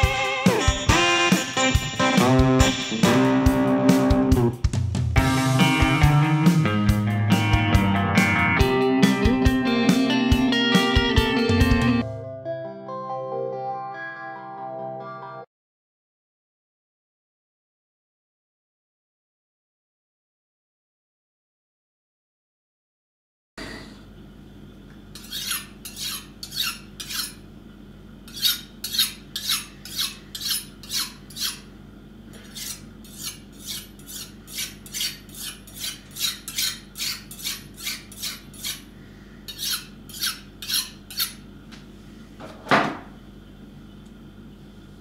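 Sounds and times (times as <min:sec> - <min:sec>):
kitchen knife scraping: 0:25.2 - 0:27.4, 0:28.3 - 0:31.7, 0:32.4 - 0:38.9, 0:39.5 - 0:41.4.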